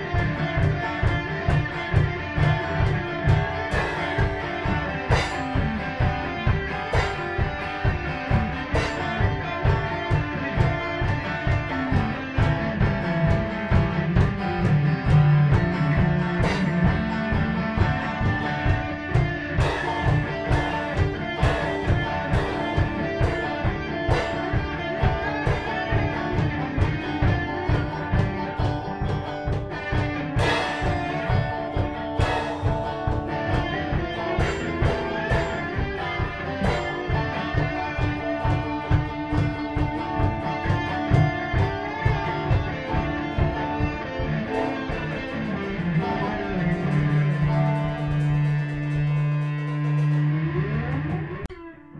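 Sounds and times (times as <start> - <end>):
drum kit beat: 0.0 - 51.6
electric guitars: 0.0 - 51.9.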